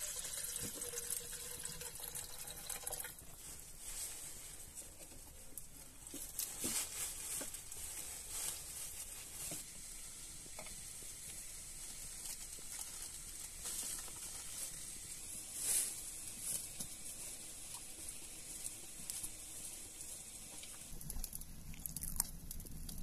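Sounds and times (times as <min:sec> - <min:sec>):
wood fire crackling and popping: 0:05.0 - 0:23.0.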